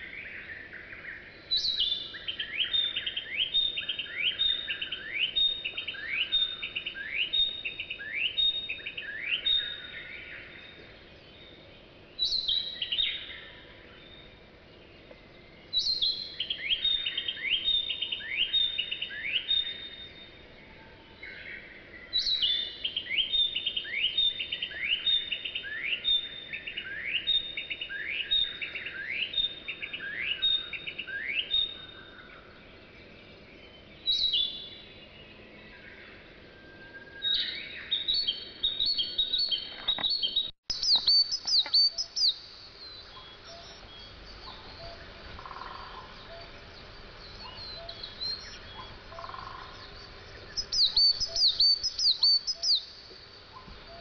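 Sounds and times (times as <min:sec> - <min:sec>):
high short bird calls: 0:37.3 - 0:46.6.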